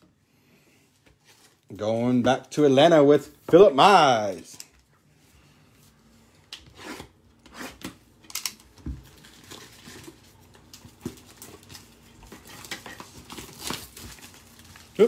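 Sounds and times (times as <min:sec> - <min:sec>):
plastic wrap crinkling and tearing: 0:08.3 - 0:15.0.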